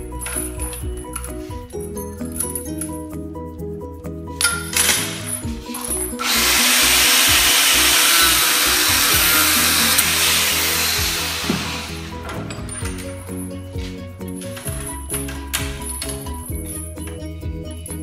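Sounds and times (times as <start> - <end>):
angle grinder cutting steel: 4.9 - 13.1.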